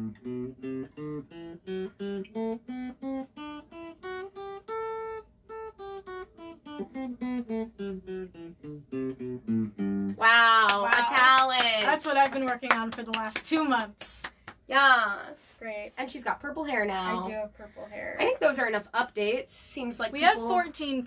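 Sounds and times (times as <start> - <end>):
electric guitar playing scale: 0.0 - 11.2.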